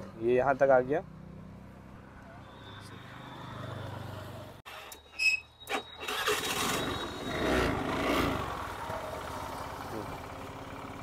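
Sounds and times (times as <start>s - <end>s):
scooter engine running: 6.3s - 11.0s.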